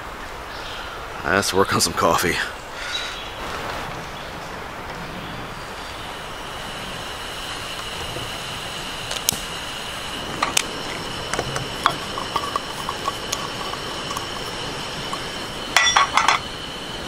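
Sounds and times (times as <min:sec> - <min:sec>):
steady hiss with high tone: 0:00.0 - 0:17.0
cookware and utensils clinking: 0:11.3 - 0:16.5.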